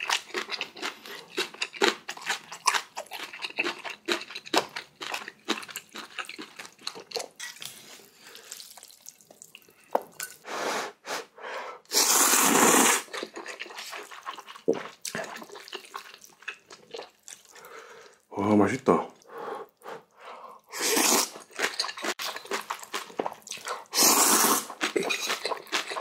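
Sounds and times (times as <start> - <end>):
wet chewing and smacking: 0.0 - 10.4, 13.0 - 18.3, 19.2 - 26.0
noodle slurps: 11.9 - 16.2, 20.7 - 22.4, 23.5 - 26.0.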